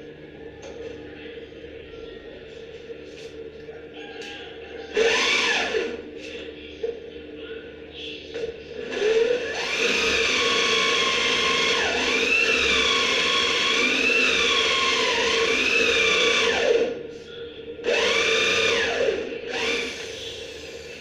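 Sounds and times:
electric drill drilling into wood: 0:04.9 - 0:06.0, 0:08.8 - 0:16.9, 0:17.8 - 0:21.0.

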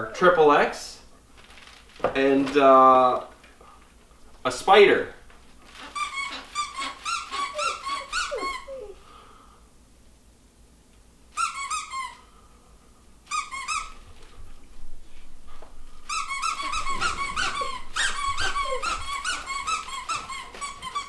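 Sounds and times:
squeaky dog toys squeaking: 0:05.6 - 0:09.0, 0:11.3 - 0:12.3, 0:13.3 - 0:14.1, 0:16.1 - 0:21.0.

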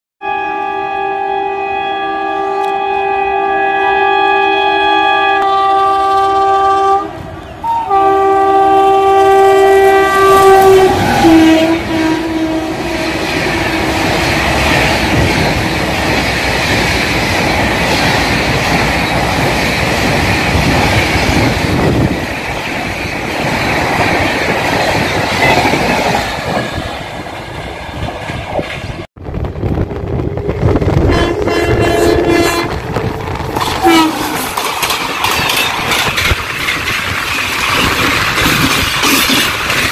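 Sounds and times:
train air horn: 0:00.2 - 0:14.1, 0:30.3 - 0:32.9, 0:33.8 - 0:34.5
train coaches rushing past: 0:04.7 - 0:39.9
wheels clattering over rails: 0:32.9 - 0:39.9.

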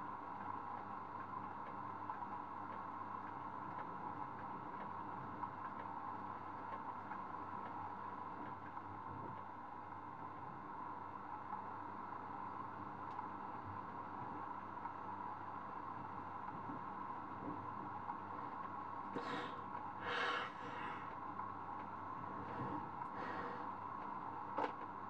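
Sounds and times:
faint ticks: 0:00.4 - 0:06.0, 0:06.6 - 0:07.8
steady hum: 0:02.2 - 0:25.0.

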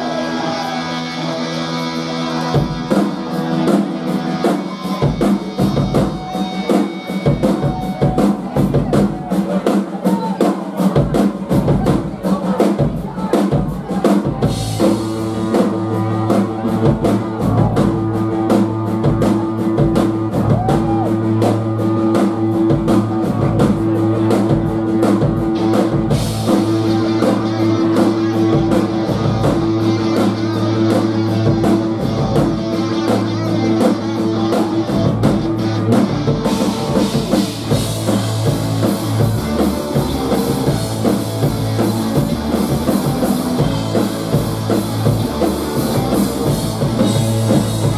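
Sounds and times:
electric guitar: 0:00.0 - 0:12.1, 0:13.5 - 0:47.9
bass guitar: 0:00.0 - 0:47.9
drum kit beat: 0:00.0 - 0:47.9.

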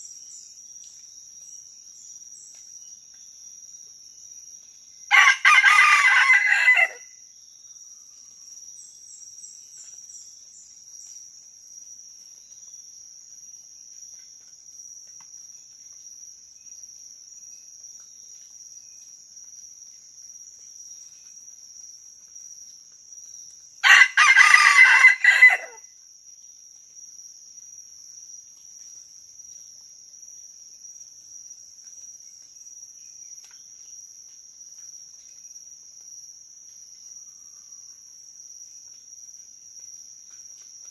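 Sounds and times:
insects trilling: 0:00.0 - 0:40.9
rooster crowing: 0:05.1 - 0:07.1, 0:23.8 - 0:25.8.

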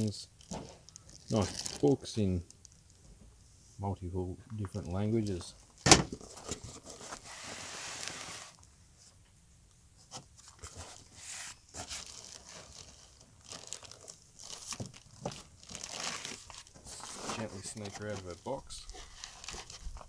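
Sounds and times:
packaging rustling and crinkling: 0:00.0 - 0:03.0, 0:04.7 - 0:08.7, 0:10.4 - 0:20.0
packaging scrapes: 0:06.2 - 0:08.6, 0:10.5 - 0:14.8, 0:15.6 - 0:20.0.

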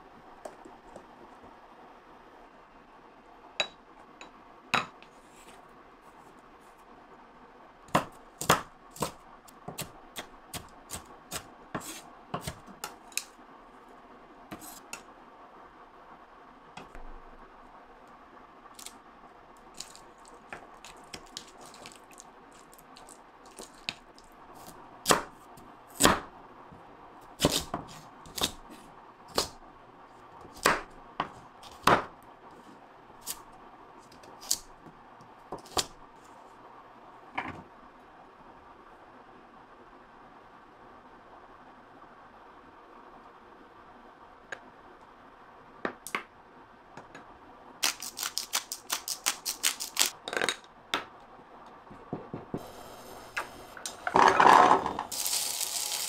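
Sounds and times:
knife on wooden cutting board: 0:11.8 - 0:12.6.

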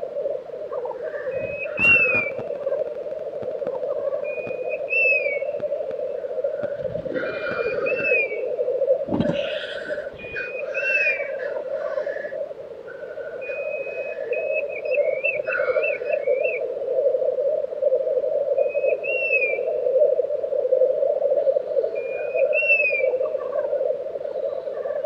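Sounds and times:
grouse bubbling coo: 0:00.0 - 0:25.0
bird hiss: 0:00.7 - 0:20.1
whistled bird calls with trills: 0:01.0 - 0:02.5, 0:04.0 - 0:05.6, 0:07.2 - 0:08.5, 0:09.3 - 0:12.4, 0:13.0 - 0:16.6, 0:18.5 - 0:19.7, 0:21.9 - 0:23.7.

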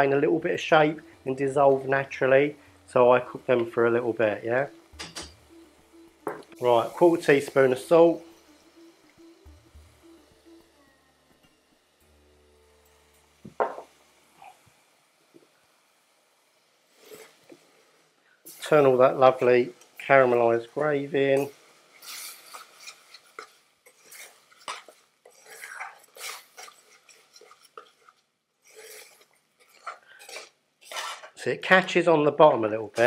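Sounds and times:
spoon knocking against pan: 0:05.0 - 0:05.4
metal spoon scraping pan: 0:21.4 - 0:31.4.

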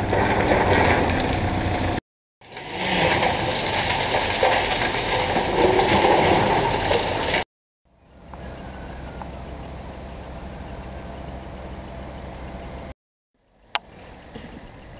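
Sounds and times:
diesel engine under load: 0:00.0 - 0:13.0
masonry breaking and falling: 0:02.4 - 0:07.5.

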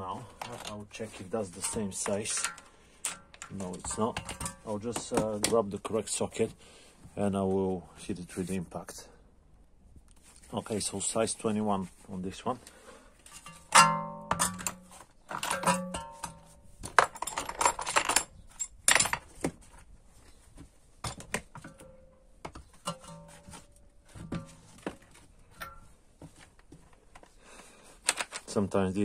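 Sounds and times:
metal tools clinking: 0:00.1 - 0:05.6, 0:13.3 - 0:19.4, 0:21.1 - 0:24.8, 0:25.4 - 0:26.0.

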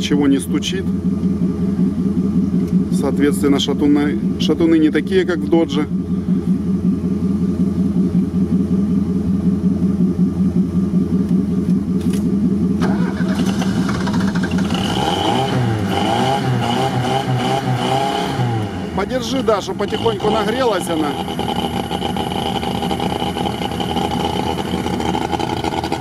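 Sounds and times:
petrol engine running and revving: 0:09.4 - 0:26.0.

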